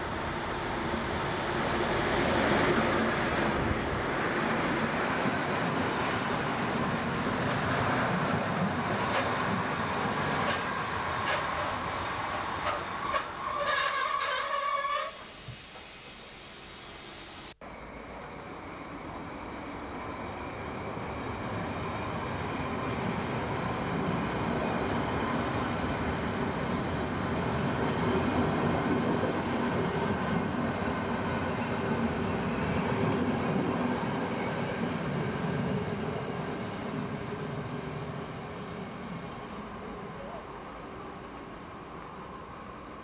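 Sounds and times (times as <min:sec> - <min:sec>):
train wheels rumbling on rails: 0:00.0 - 0:15.9.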